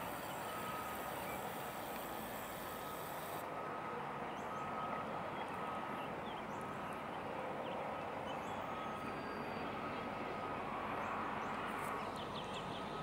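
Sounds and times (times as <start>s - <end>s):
backup alarm beeping: 0.0s - 1.4s
steady background hiss: 0.0s - 3.6s.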